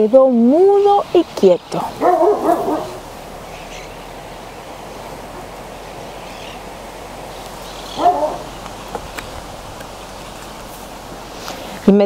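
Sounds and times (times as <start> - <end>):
steady background hiss: 0.0 - 12.0
faint bird calls: 1.8 - 9.0.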